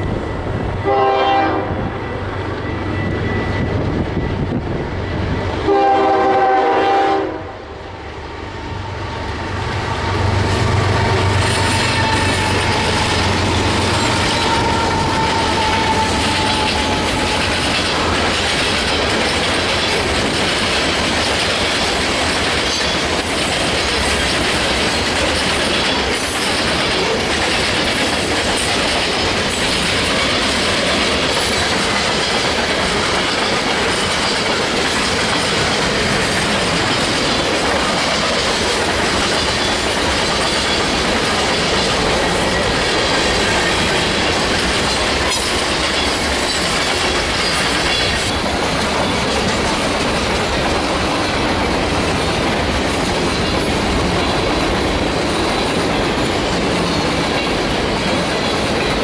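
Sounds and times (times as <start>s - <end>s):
locomotive engine rumble: 0.0s - 59.0s
locomotive horn: 0.8s - 2.3s, 5.6s - 7.8s, 9.8s - 17.6s
train wheels clattering on rails: 9.2s - 59.0s.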